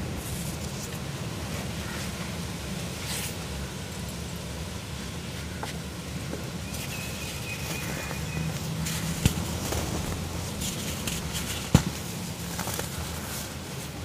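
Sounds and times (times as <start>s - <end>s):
steady low rumble: 8.3s - 13.3s.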